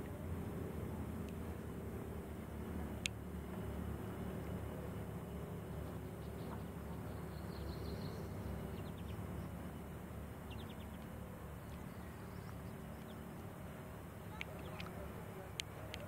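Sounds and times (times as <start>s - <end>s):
boat motor droning: 0.0s - 16.0s
faint bird chirps: 6.2s - 9.9s.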